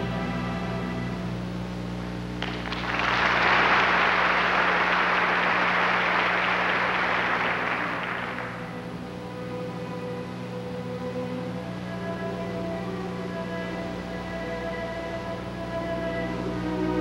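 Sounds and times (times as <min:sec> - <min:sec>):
steady low hum: 0:00.0 - 0:17.0
audience applauding: 0:02.4 - 0:08.8.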